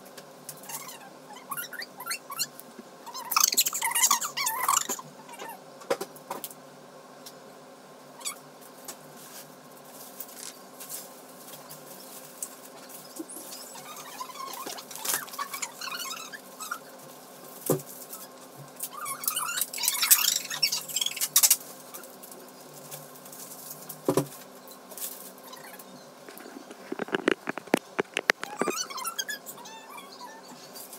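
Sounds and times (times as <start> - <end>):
bubble wrap and bags crinkling: 9.1 - 28.8.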